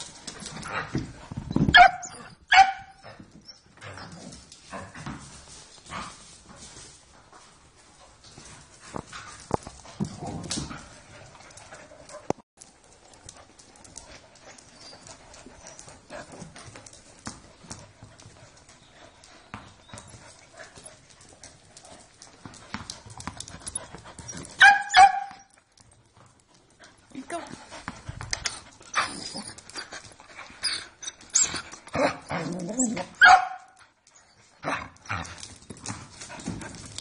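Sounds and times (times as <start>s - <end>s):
dog claws clicking on concrete: 8.9s - 19.4s, 20.0s - 37.0s
dog yelping: 24.6s - 25.5s, 32.5s - 33.8s.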